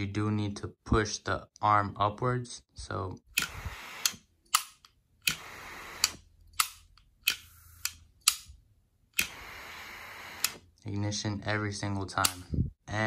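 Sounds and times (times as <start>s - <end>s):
torch jets hissing: 3.4s - 4.2s, 5.2s - 6.2s, 9.2s - 10.6s.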